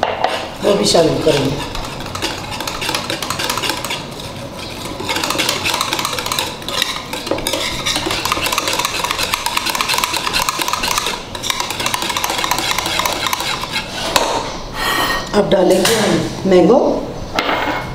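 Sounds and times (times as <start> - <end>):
whisk beating cream: 0.6 - 14.2
whisk wires clicking against dish: 4.8 - 14.3.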